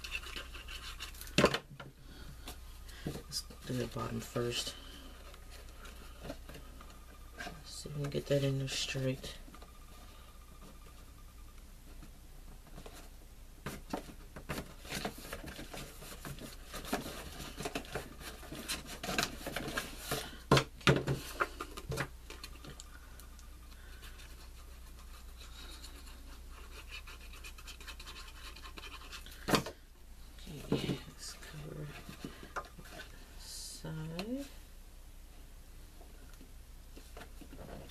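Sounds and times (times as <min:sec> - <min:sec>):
cardstock rustling and scraping: 0:00.0 - 0:01.7, 0:11.9 - 0:22.8, 0:23.8 - 0:29.8, 0:30.5 - 0:34.5.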